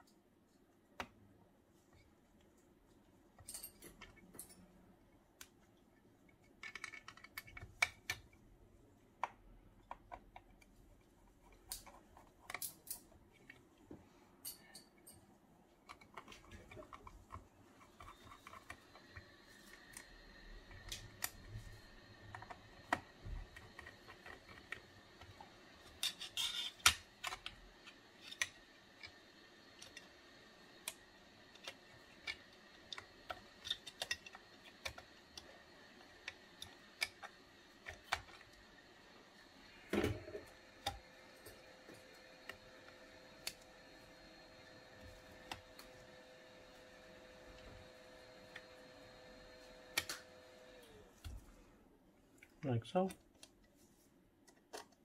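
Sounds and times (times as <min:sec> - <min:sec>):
screwdriver and metal parts clicking: 0:11.4 - 0:13.6, 0:25.8 - 0:30.2, 0:30.8 - 0:38.6.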